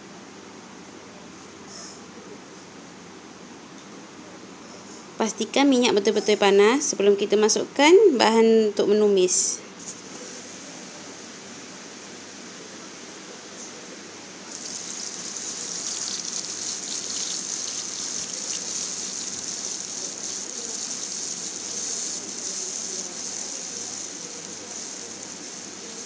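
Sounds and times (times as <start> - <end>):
spice paste sizzling in hot oil: 14.5 - 26.0.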